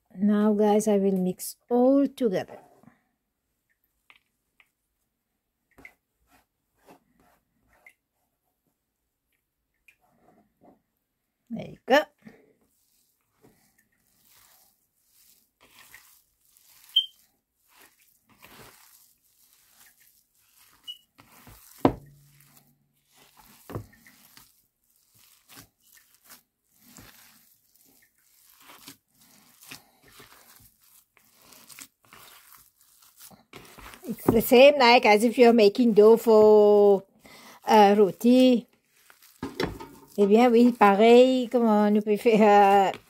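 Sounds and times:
hand squishing food in bowl: 0:12.2 - 0:43.0
short high chirp: 0:16.9 - 0:17.2.

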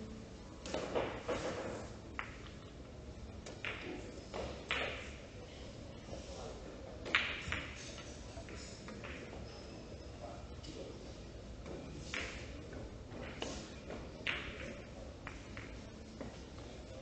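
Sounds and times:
billiard balls clicking: 0:00.6 - 0:05.2, 0:12.0 - 0:16.4.

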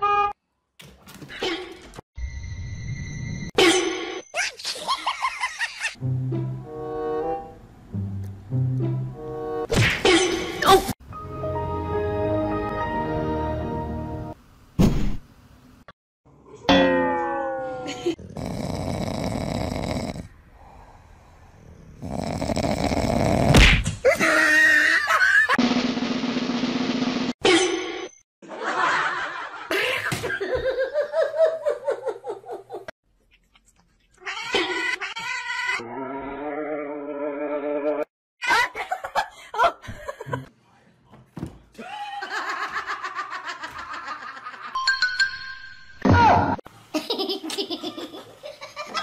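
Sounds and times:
sharp thump: 0:14.8 - 0:15.2
person laughing: 0:17.8 - 0:18.2, 0:41.8 - 0:44.6.

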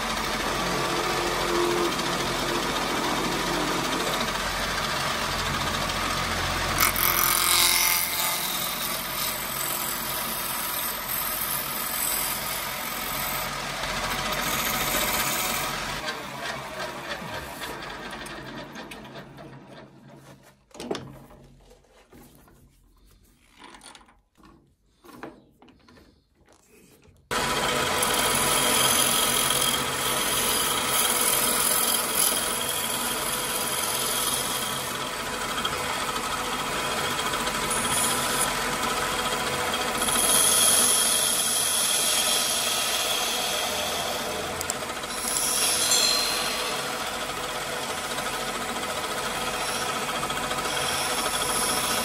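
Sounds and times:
lathe motor running: 0:00.0 - 0:20.0, 0:27.3 - 0:52.0.

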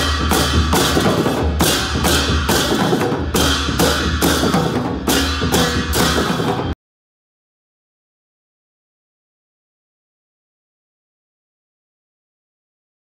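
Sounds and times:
brass cymbals crashing: 0:00.0 - 0:06.8
drums beating: 0:00.0 - 0:06.8.

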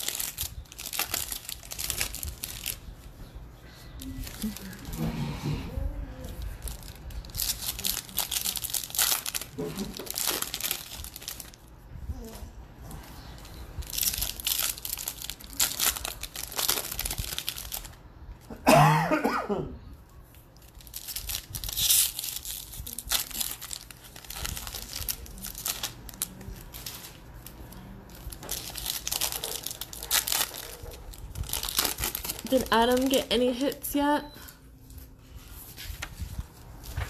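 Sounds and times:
foil wrappers tearing and crinkling: 0:00.0 - 0:03.0, 0:04.0 - 0:05.0, 0:06.3 - 0:11.6, 0:13.8 - 0:18.0, 0:20.6 - 0:33.9
person coughing: 0:18.5 - 0:19.8.

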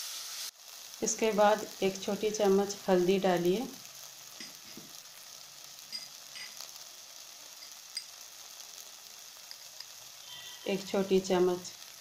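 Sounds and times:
paste sizzling in hot oil: 0:00.0 - 0:12.0
oil popping and crackling: 0:03.5 - 0:10.4.

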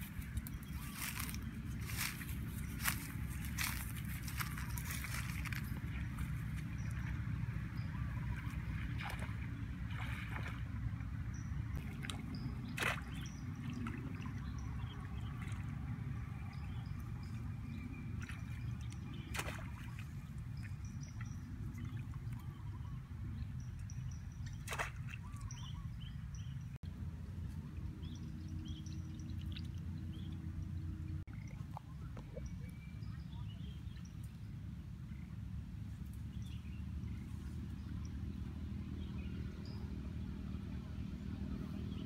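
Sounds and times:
feet splashing in shallow water: 0:00.0 - 0:22.6, 0:24.5 - 0:25.8
steady low rumble: 0:00.0 - 0:24.7.

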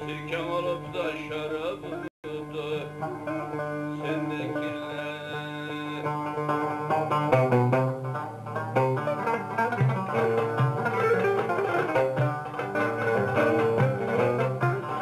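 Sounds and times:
man singing: 0:00.0 - 0:06.3
plucked and strummed lutes: 0:00.0 - 0:15.0.

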